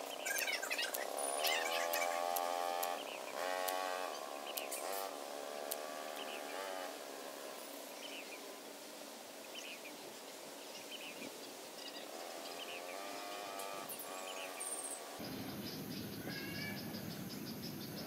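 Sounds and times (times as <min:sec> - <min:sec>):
bird chirps: 0:00.0 - 0:05.0, 0:10.7 - 0:18.0
faint insect hiss: 0:00.0 - 0:18.0
voice-like calls: 0:00.2 - 0:03.0.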